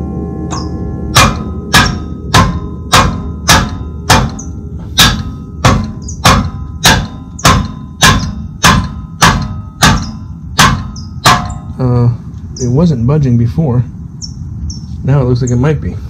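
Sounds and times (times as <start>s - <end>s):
metallic ring: 0.0s - 12.8s
mallet hammering metal wrench: 0.5s - 11.9s.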